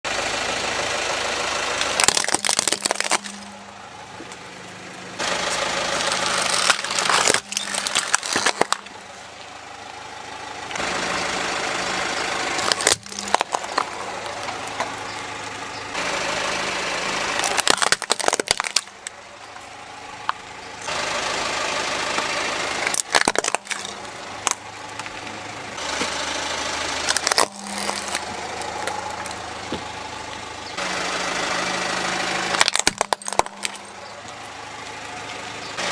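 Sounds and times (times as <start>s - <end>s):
car engine idling: 0.1s - 35.9s
plastic toys cracking under tyre: 1.8s - 3.6s, 6.0s - 9.0s, 12.6s - 15.0s, 17.3s - 19.2s, 22.8s - 25.2s, 27.0s - 29.8s, 32.5s - 34.0s.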